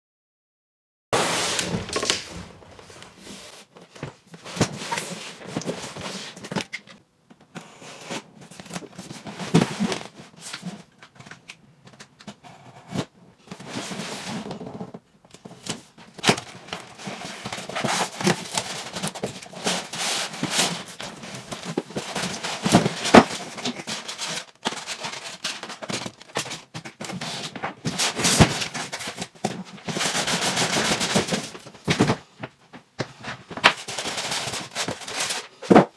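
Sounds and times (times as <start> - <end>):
cardboard box scraping and rustling: 1.2 - 6.5.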